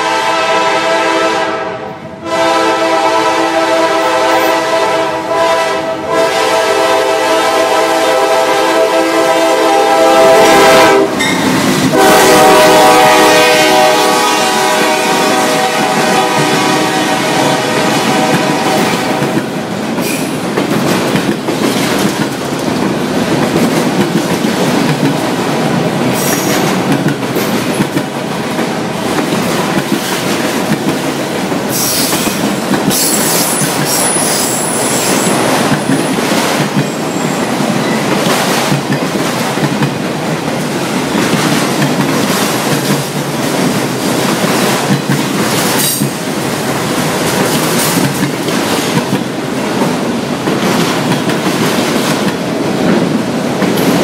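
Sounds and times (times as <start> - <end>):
freight train wheels clattering: 9.4 - 54.0
high-pitched wheel squeal: 33.0 - 35.4.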